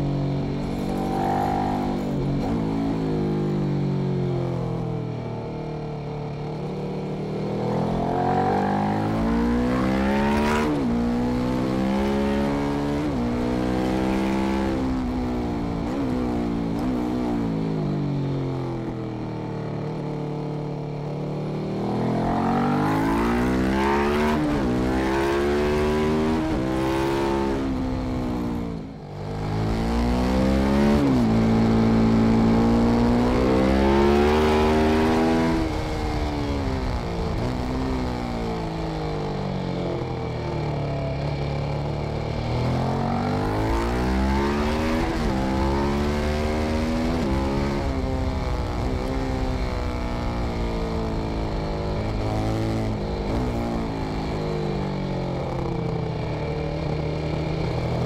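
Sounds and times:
motorcycle engine revving: 0:00.0 - 0:04.0, 0:06.5 - 0:17.8, 0:21.5 - 0:58.0
wind and tyre rush: 0:21.8 - 0:58.0.

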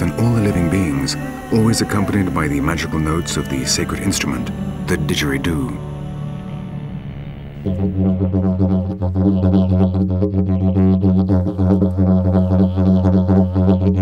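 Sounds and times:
didgeridoo drone: 0:00.0 - 0:14.0.

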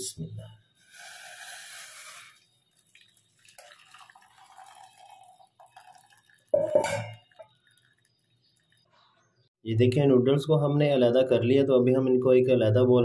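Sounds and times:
water dripping and trickling: 0:02.2 - 0:09.3
metal bowl clattering: 0:05.9 - 0:07.8.

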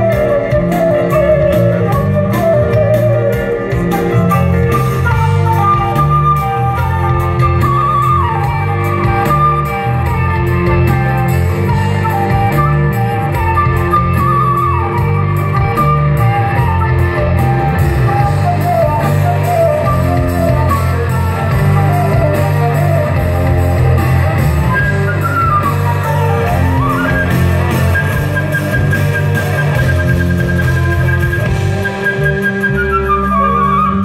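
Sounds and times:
flute melody with pitch slides: 0:00.0 - 0:34.0
live band music: 0:00.0 - 0:34.0.

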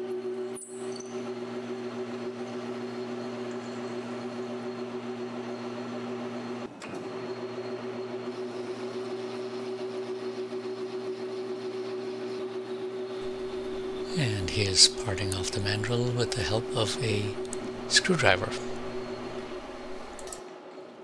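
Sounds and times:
metal lathe humming: 0:13.1 - 0:20.4.

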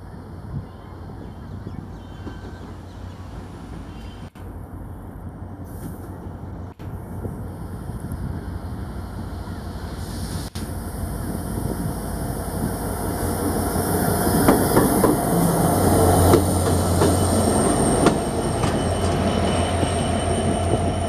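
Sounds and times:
locomotive engine humming: 0:00.0 - 0:21.0
high wheel squeal: 0:13.8 - 0:21.0.

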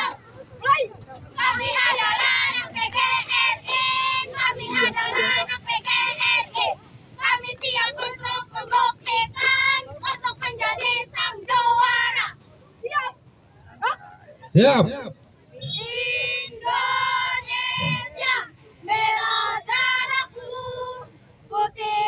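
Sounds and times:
girls chanting in unison: 0:01.4 - 0:12.4, 0:15.8 - 0:22.0.

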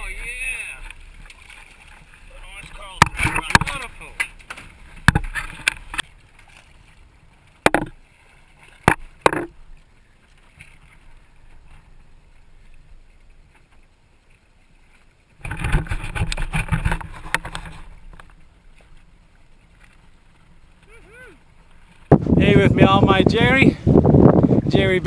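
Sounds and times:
rough knocking and rubbing: 0:03.0 - 0:03.9, 0:05.0 - 0:06.0, 0:07.6 - 0:08.0, 0:08.8 - 0:09.6, 0:15.4 - 0:18.3.

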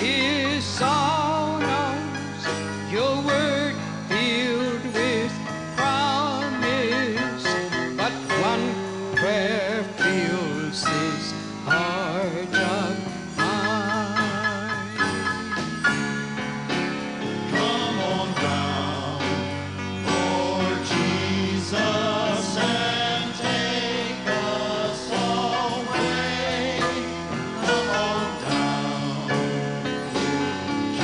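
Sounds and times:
bass guitar: 0:00.0 - 0:31.0
voices singing together: 0:17.4 - 0:31.0.

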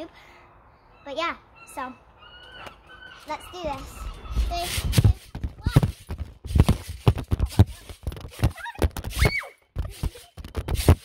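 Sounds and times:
child squealing: 0:01.0 - 0:05.1, 0:08.6 - 0:09.6
trampoline mat thudding: 0:04.5 - 0:11.0.

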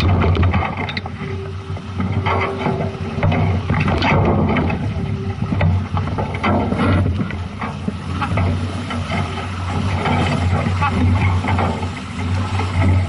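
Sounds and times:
knocks and clicks: 0:00.0 - 0:13.0
water washing along hull: 0:00.0 - 0:13.0.

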